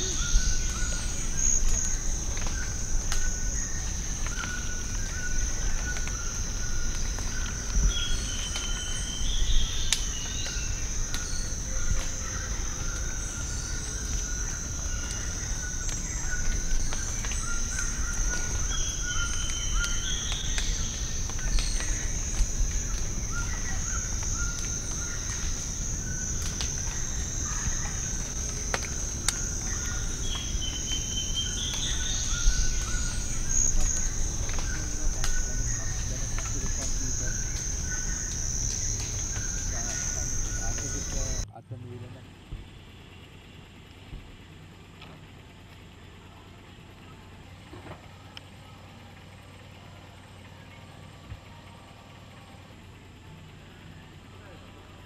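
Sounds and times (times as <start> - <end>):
high-pitched insect drone: 0.0 - 41.4
low on-and-off trill: 0.0 - 41.5.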